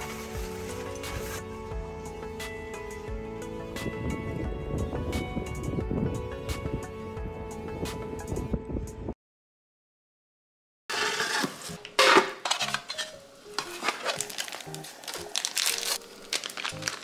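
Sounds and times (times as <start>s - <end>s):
quiet background music: 0.0s - 8.8s, 11.2s - 17.0s
cookware and utensils clattering: 11.0s - 14.6s.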